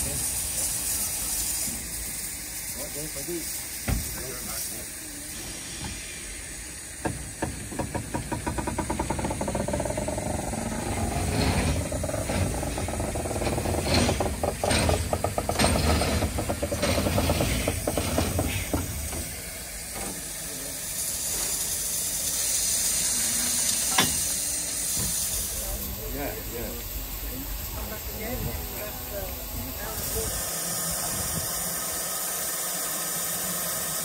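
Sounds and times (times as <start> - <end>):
steady hiss of steam: 0.0 - 34.0
steam engine knocks: 3.8 - 4.2, 7.0 - 20.3.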